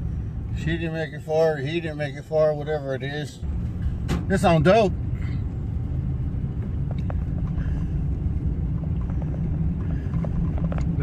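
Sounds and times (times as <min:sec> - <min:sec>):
vehicle engine and tyre rumble: 0:00.0 - 0:11.0.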